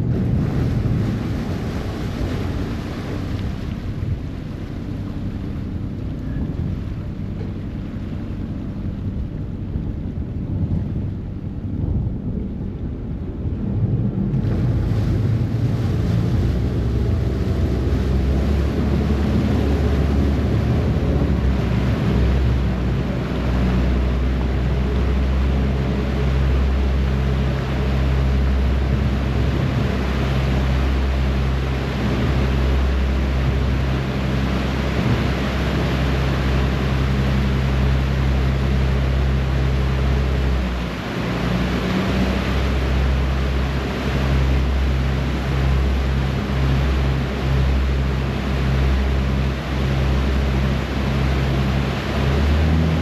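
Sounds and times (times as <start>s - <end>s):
boat wake churning: 0.0s - 53.0s
diesel engines droning: 0.0s - 53.0s.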